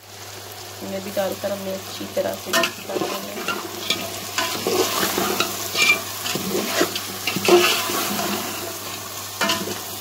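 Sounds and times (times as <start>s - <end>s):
food sizzling in oil: 0.0s - 10.0s
metal spoon stirring in pot: 2.5s - 10.0s.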